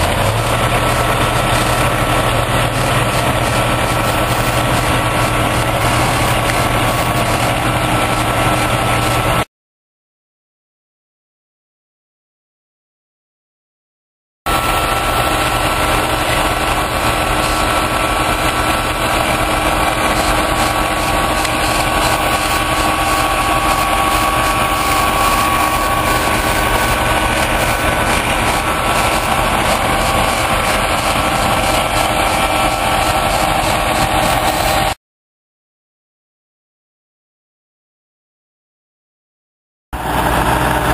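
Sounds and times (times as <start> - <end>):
diesel engines running: 0.0 - 9.5, 14.5 - 35.0, 40.0 - 40.9
steady high whine: 0.0 - 9.5, 14.5 - 35.0.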